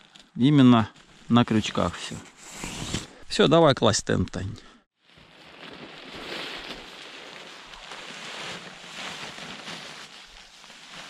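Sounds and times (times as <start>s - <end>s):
nylon tent fabric rustling: 5.0s - 11.0s.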